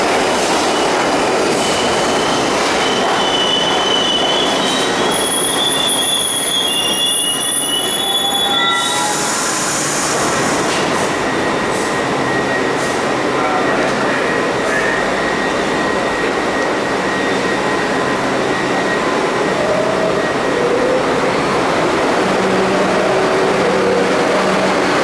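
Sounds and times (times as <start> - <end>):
subway train rumbling: 0.0 - 25.0
steel wheels squealing: 1.6 - 10.4.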